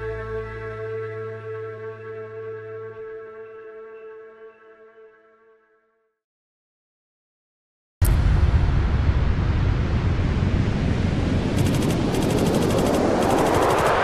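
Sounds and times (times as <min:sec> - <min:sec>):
loud rumbling burst of noise: 0:08.0 - 0:14.0
rising sweep: 0:09.6 - 0:14.0
rapid crackling rattle: 0:11.6 - 0:14.0.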